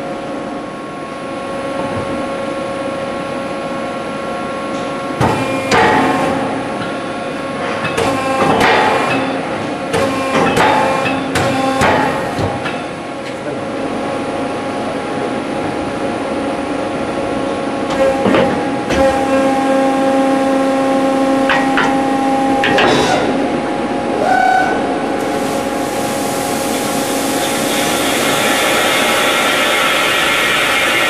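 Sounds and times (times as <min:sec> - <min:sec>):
drilling machine humming and whining: 0:14.2 - 0:31.0
drill hiss: 0:25.2 - 0:31.0.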